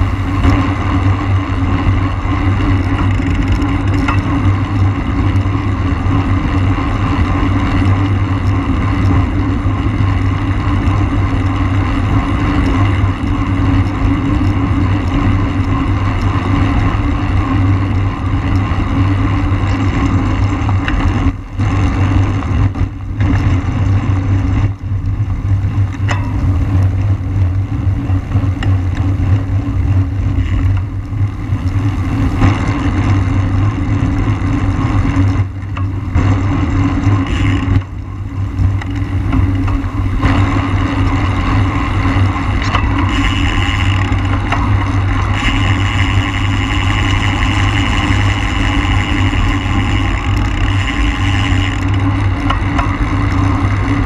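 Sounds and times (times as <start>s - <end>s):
wind rushing: 0.0s - 1.2s
bicycle tyre noise on road: 0.0s - 54.0s.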